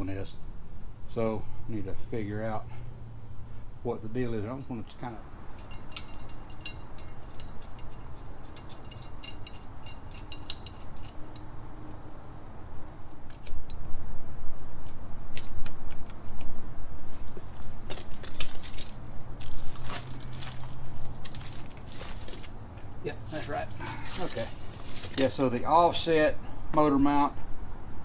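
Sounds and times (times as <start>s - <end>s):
metal tools clinking and rattling: 5.5s - 11.6s, 17.9s - 22.5s, 23.3s - 25.4s.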